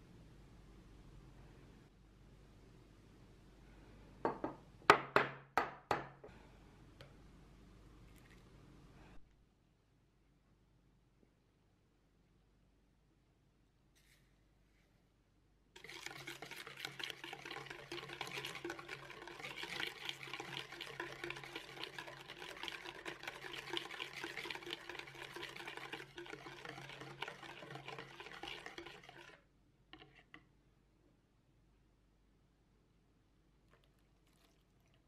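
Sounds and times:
whisk beating in plastic bowl: 0:15.8 - 0:30.3.

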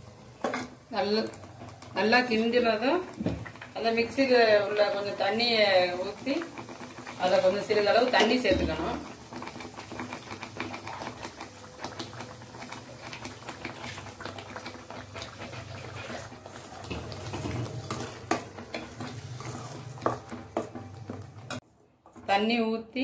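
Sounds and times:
ladle scraping steel pan: 0:15.6 - 0:20.9.

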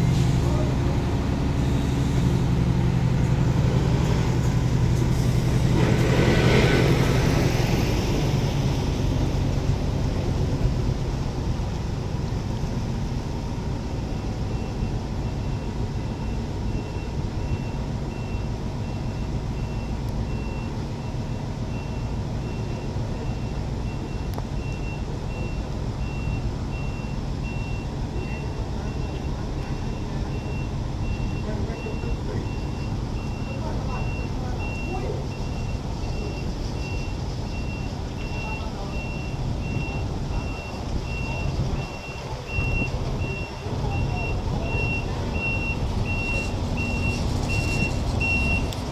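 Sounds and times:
diesel truck engine: 0:00.0 - 0:48.9
reversing alarm beeping: 0:14.1 - 0:48.8.

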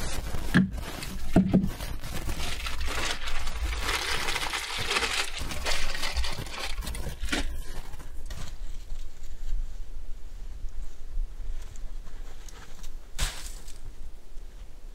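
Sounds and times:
plastic bag rustling: 0:00.0 - 0:08.8.

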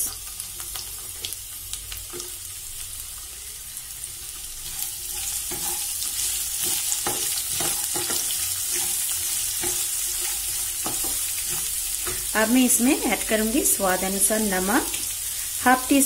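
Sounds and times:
vegetables sizzling in oil: 0:00.0 - 0:16.0
spatula scraping and knocking pan: 0:05.0 - 0:12.3.

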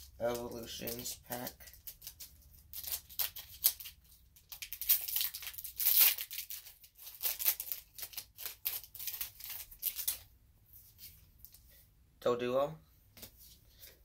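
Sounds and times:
foil wrapper tearing and crinkling: 0:00.2 - 0:10.3.

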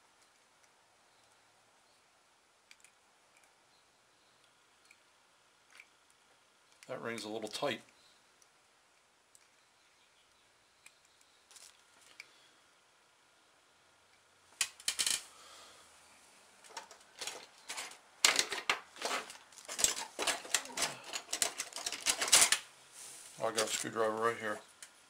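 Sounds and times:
metal hand tools clattering: 0:16.7 - 0:22.6.

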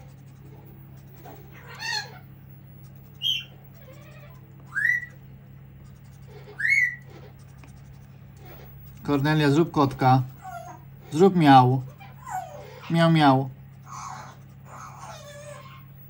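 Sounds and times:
parrot giving shrill calls: 0:01.6 - 0:02.2, 0:03.2 - 0:04.1, 0:04.7 - 0:05.2, 0:06.5 - 0:07.1.

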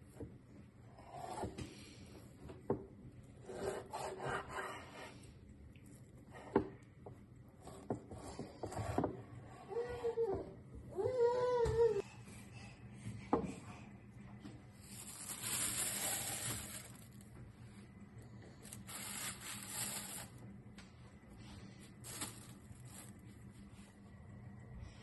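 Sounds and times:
plastic bag rustling and crinkling: 0:14.8 - 0:17.4, 0:18.5 - 0:20.4, 0:21.9 - 0:23.9.

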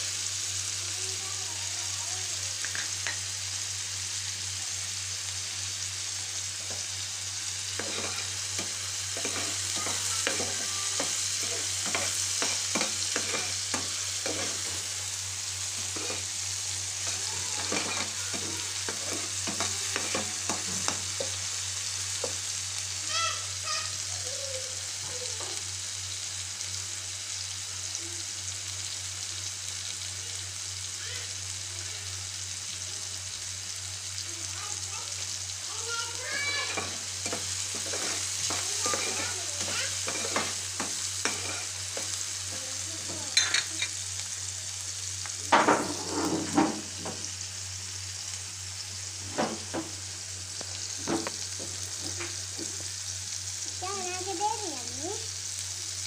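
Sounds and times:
vegetables sizzling in oil: 0:00.0 - 0:56.0
metal spoon scraping a pan: 0:07.8 - 0:14.8, 0:15.8 - 0:16.3, 0:17.0 - 0:21.4, 0:36.6 - 0:42.2, 0:45.6 - 0:46.8.

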